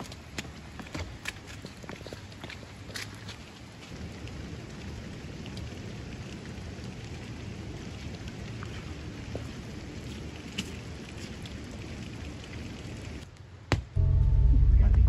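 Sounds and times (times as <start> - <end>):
raindrop ticks: 0.0 - 13.4
rain on wet ground: 0.0 - 13.6
low rumble: 14.0 - 15.0.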